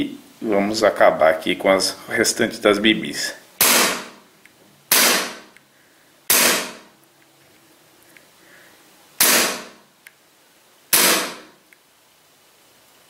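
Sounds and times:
airsoft pistol shots: 3.6s - 4.2s, 4.9s - 5.6s, 6.3s - 6.9s, 9.2s - 9.8s, 10.9s - 11.6s.

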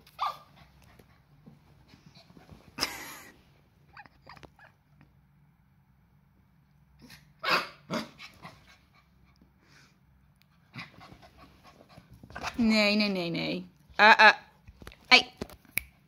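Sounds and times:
puppy barking: 0.2s - 0.5s, 7.4s - 8.1s.

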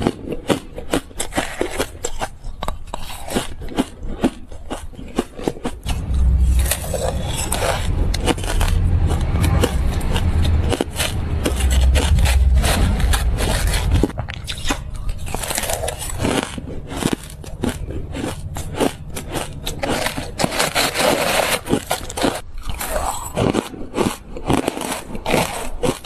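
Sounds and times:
crushed ice crunching: 2.9s - 26.0s
heavy low rumble: 5.8s - 22.4s
spoon scraping through ice: 14.4s - 23.7s.

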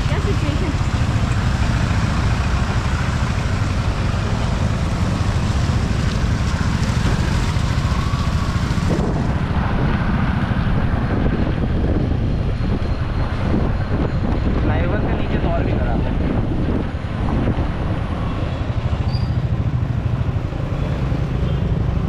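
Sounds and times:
vehicle rumbling on a rough road: 0.0s - 22.0s
wind buffeting the microphone: 6.8s - 18.8s.

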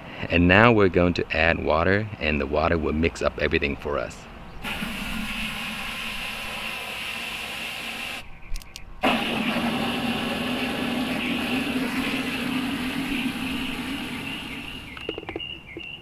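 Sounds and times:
hose spraying water into bucket: 4.6s - 8.2s, 9.0s - 15.0s.

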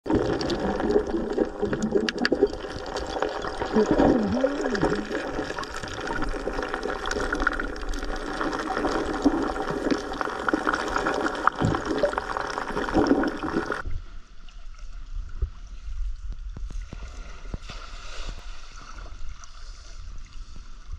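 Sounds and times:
underwater river rushing: 0.0s - 13.9s
water above surface: 0.0s - 20.9s
small clicks and splashes: 0.1s - 10.1s.

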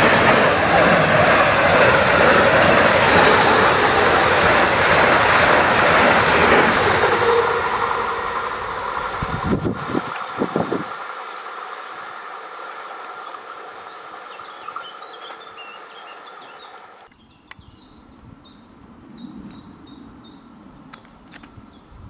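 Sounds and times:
electric train approaching: 0.0s - 14.7s
electric train humming past: 0.0s - 15.9s
birds chirping: 12.3s - 22.0s.

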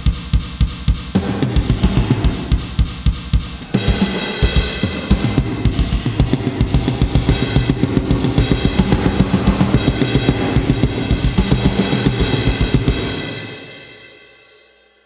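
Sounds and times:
kick drum: 0.0s - 3.5s
snare drum: 3.4s - 13.7s
cymbals crashing: 3.5s - 14.6s.

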